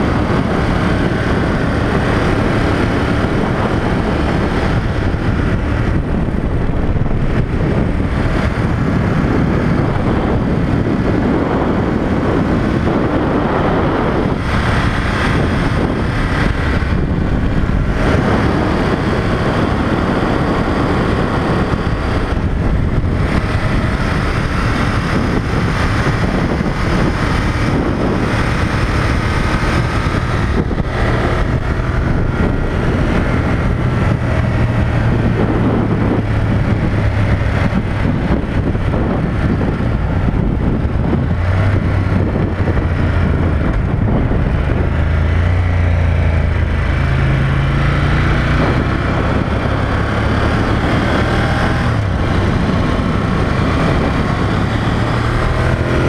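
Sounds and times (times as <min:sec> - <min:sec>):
motorcycle engine: 0:00.0 - 0:56.0
wind rush on microphone: 0:00.0 - 0:56.0.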